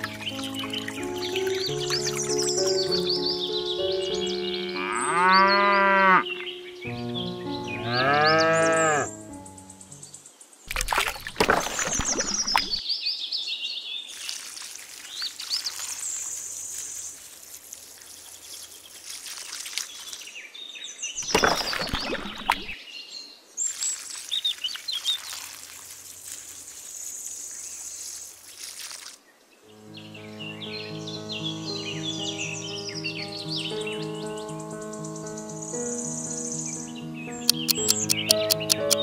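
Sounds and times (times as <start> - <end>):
water pouring from watering can: 0.0 - 3.0, 10.7 - 12.8, 14.1 - 20.4, 21.2 - 22.8, 23.6 - 29.2
birds chirping: 0.0 - 12.9, 20.0 - 25.3, 29.8 - 39.0
cow mooing: 4.6 - 6.4, 7.8 - 9.1.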